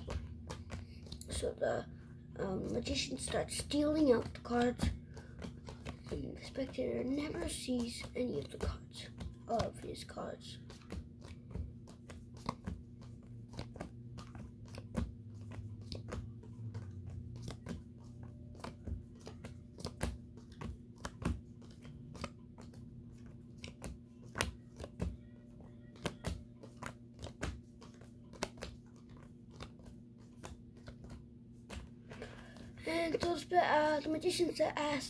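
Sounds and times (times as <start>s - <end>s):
playing cards flicking onto carpet: 0.0s - 1.4s, 2.8s - 32.8s.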